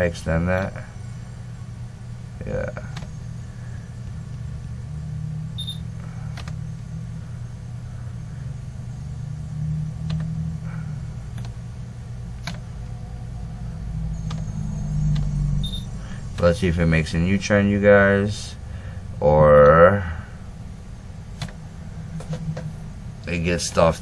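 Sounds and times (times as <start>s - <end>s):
steady low hum: 0.0s - 24.0s
computer mouse clicks: 10.0s - 10.3s, 11.3s - 11.6s, 12.4s - 12.6s, 14.2s - 14.5s
short high beep: 15.6s - 15.9s.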